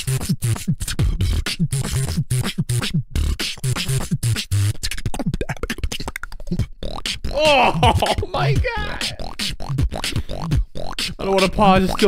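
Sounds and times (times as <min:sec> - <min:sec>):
person beatboxing: 0:00.0 - 0:12.0.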